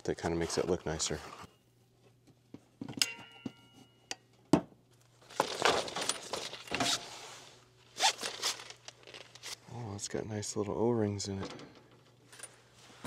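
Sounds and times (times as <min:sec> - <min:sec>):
rustling: 0:05.2 - 0:09.6.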